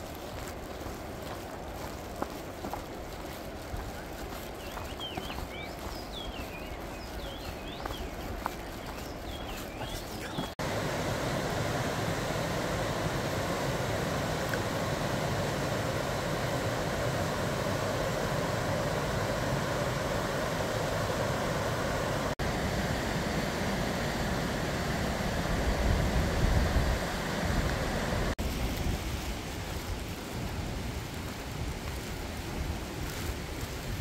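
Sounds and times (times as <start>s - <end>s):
stream rushing over rocks: 0.0s - 34.0s.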